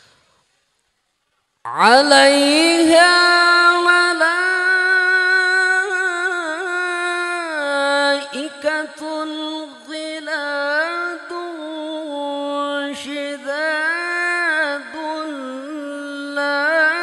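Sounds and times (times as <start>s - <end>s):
man chanting through loudspeakers: 1.7s - 17.0s.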